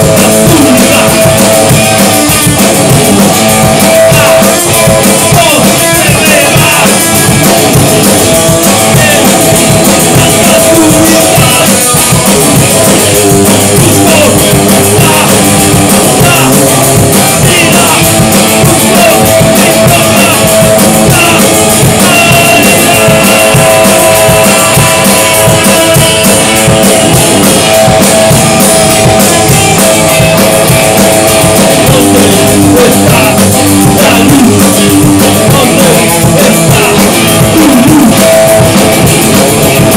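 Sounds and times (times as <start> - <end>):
rock band music: 0.0 - 39.9.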